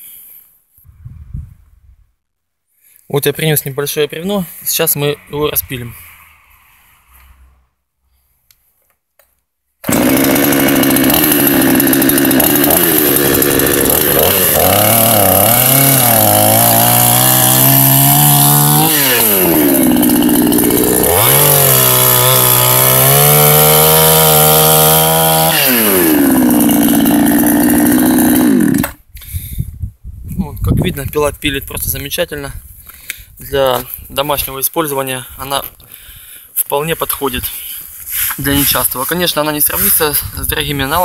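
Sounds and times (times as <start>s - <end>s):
chainsaw sawing through log: 9.8s - 29.1s.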